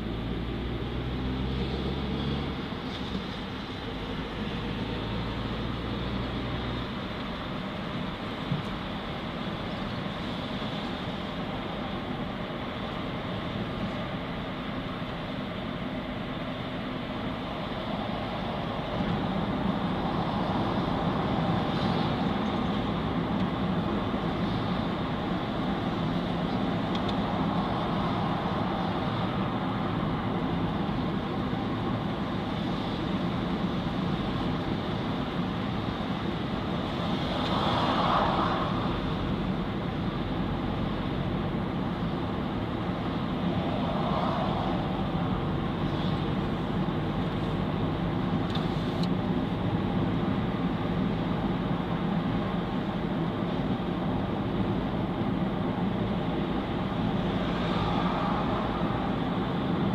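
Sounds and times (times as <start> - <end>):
road and engine noise inside car: 0.0 - 59.9.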